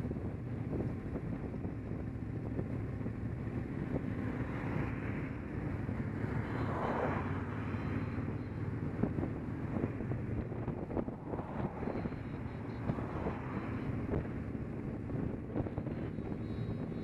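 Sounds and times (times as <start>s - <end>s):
wind on microphone: 0.0s - 17.0s
rush of noise: 3.5s - 17.0s.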